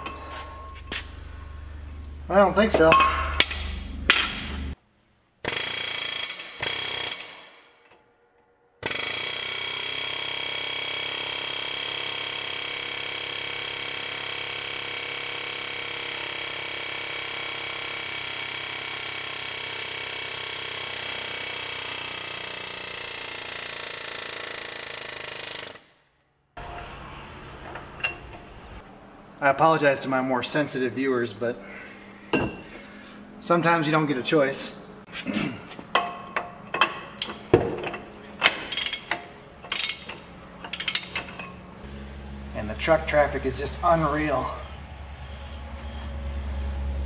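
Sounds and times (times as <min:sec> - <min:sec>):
pneumatic die grinder running: 0:05.4 - 0:07.5, 0:08.8 - 0:25.9.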